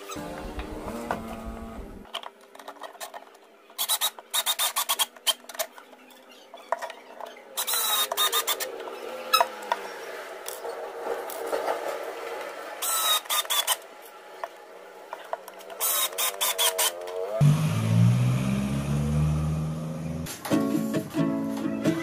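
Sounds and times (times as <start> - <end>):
electric screwdriver driving screws: 7.6 - 8.7, 15.8 - 17.1.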